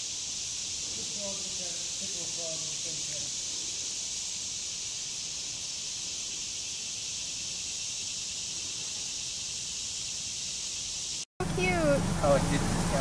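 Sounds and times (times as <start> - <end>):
high-pitched insect chorus: 0.0 - 11.3.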